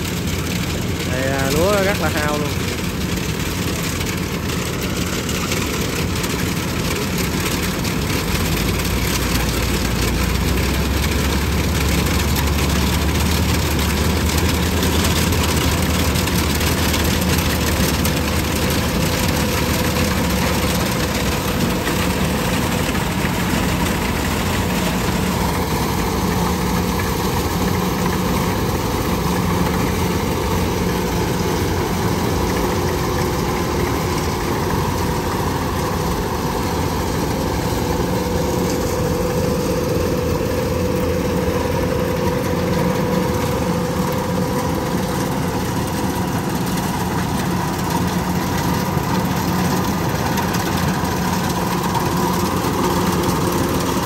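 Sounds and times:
combine harvester engine droning: 0.0 - 54.0.

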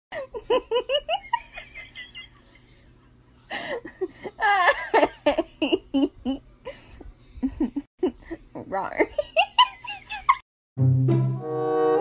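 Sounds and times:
person laughing: 3.6 - 10.4.

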